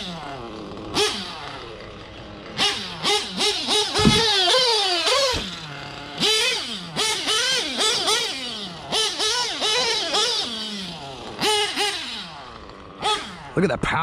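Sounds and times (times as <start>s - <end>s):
model engine revving: 0.0s - 14.0s
low thumps: 3.9s - 4.4s.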